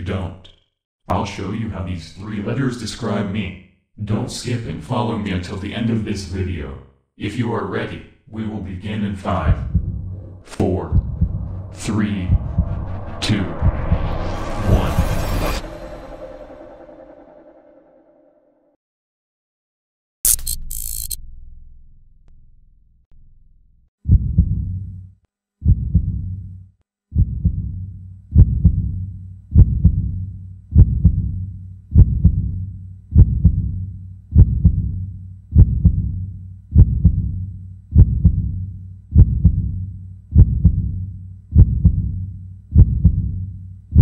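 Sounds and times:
heartbeat thuds: 9.5s - 14.2s, 24.1s - 24.8s, 25.6s - 26.4s, 27.1s - 44.0s.

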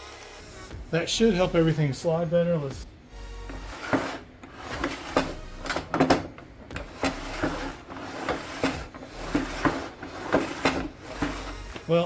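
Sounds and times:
saw fence sliding on table: 3.4s - 11.8s.

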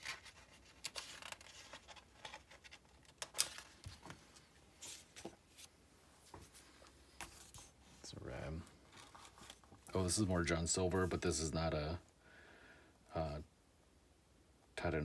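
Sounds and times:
paper rustling: 0.0s - 7.8s, 8.7s - 10.0s.

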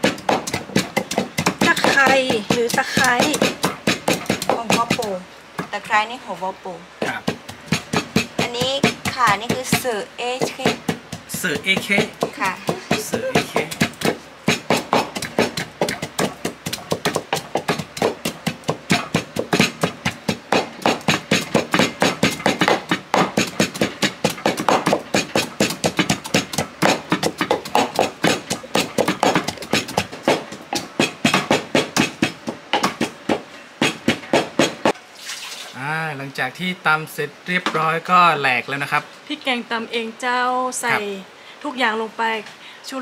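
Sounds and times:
pestle pounding in a mortar: 0.0s - 6.1s, 7.0s - 35.0s.

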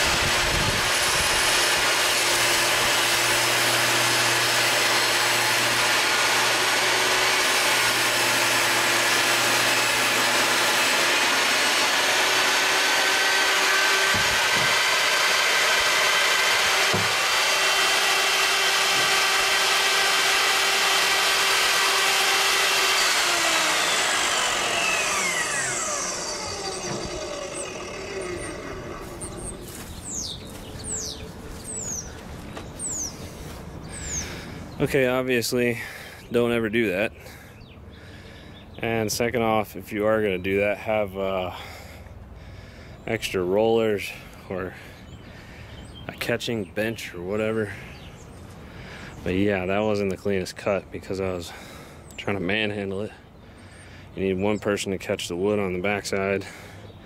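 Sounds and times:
saw blade winding down: 0.0s - 32.1s, 33.9s - 34.4s
table saw cutting board: 0.0s - 32.1s, 32.8s - 33.1s, 33.9s - 34.4s.

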